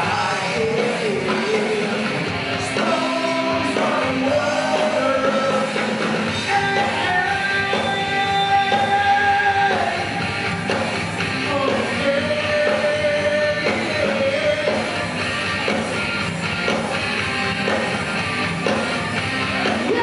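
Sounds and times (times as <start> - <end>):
person singing: 0.0 - 10.2, 11.4 - 15.0, 19.6 - 20.0
live rock band playing: 0.0 - 20.0.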